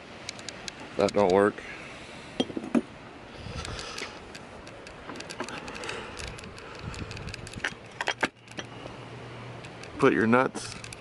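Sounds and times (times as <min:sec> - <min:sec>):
hand tools clicking and ticking: 0:03.6 - 0:08.9, 0:09.6 - 0:11.0.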